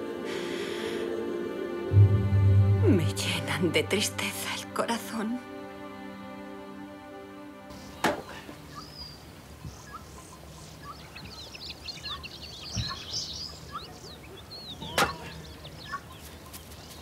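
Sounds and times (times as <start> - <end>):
small birds chirping: 7.7 - 17.0
axe striking firewood: 8.0 - 8.3.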